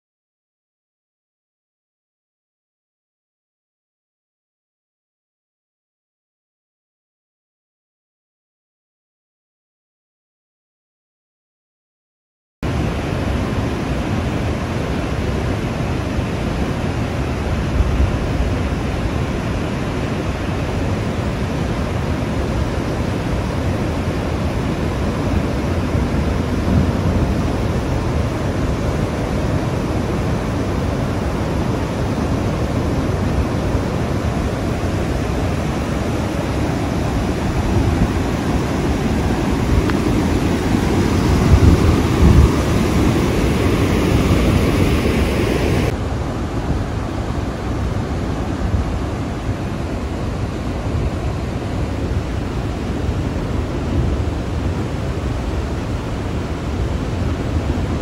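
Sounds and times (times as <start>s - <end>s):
rushing flood water: 12.7s - 58.0s.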